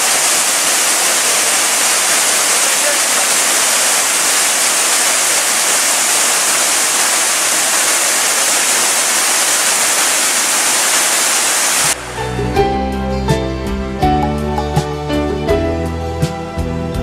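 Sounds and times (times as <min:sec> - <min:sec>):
waterfall rushing: 0:00.0 - 0:12.3.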